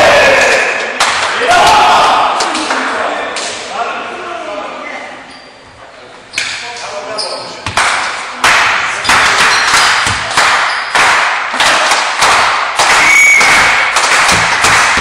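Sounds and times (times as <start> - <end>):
loud echoing thumps: 12.3 - 15.0
referee's whistle blast: 13.0 - 13.8.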